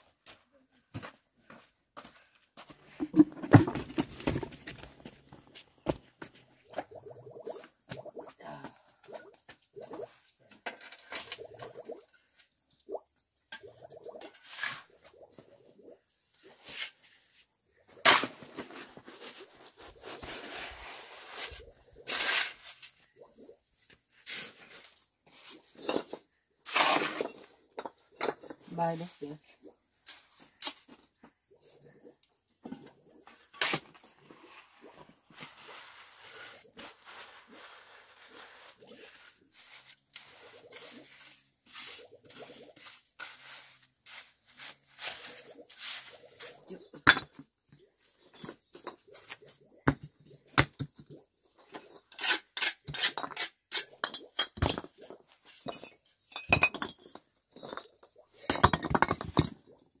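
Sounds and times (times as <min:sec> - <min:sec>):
bricks clattering: 0:03.0 - 0:05.4, 0:55.6 - 0:59.6
shovel scraping wet cement: 0:18.0 - 0:23.0, 0:26.6 - 0:27.4.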